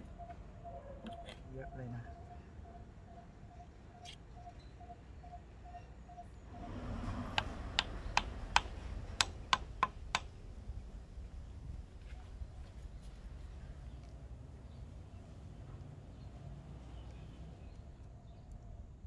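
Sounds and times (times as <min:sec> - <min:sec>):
wooden wedge being tapped: 0:07.4 - 0:10.3.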